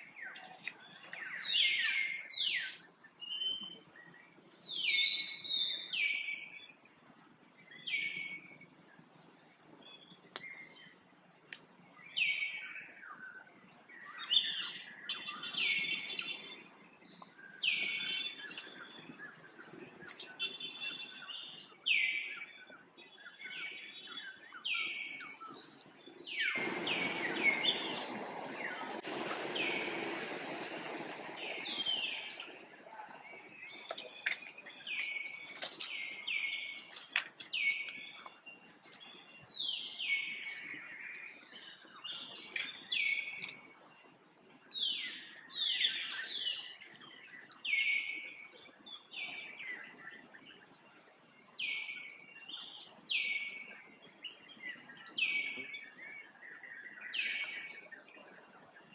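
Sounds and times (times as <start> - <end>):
broad rushing noise: 26.6 - 33.2.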